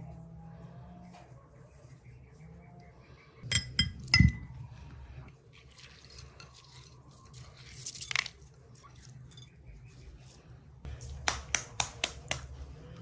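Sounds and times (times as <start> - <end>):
glass clink: 3.5 - 4.5.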